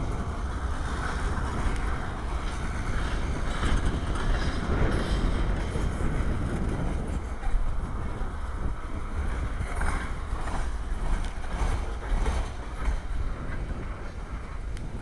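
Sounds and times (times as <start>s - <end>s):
freight train rumbling past: 0.0s - 15.0s.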